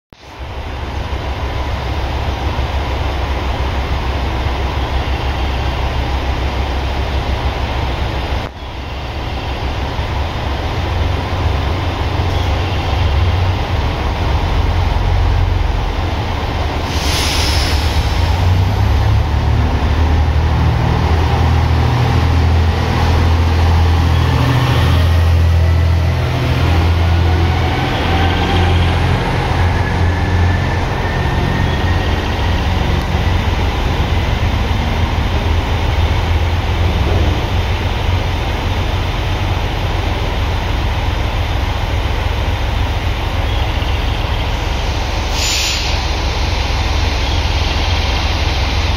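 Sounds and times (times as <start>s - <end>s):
diesel railcar engine: 0.1s - 48.9s
brief hiss: 16.8s - 18.4s, 44.9s - 46.2s.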